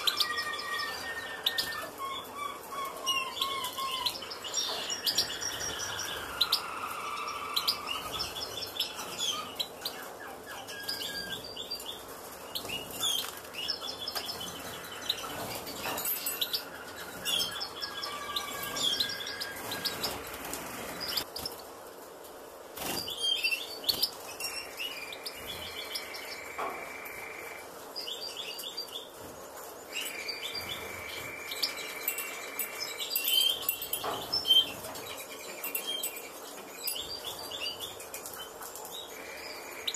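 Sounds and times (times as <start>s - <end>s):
finches chirping: 0.0s - 11.9s, 12.6s - 21.5s, 29.9s - 39.9s.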